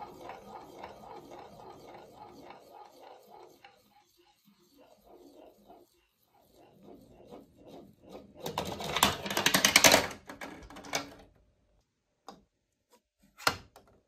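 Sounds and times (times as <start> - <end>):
marble rattling through plastic run: 0.0 - 11.3
marbles clacking in plastic catcher: 8.5 - 11.3.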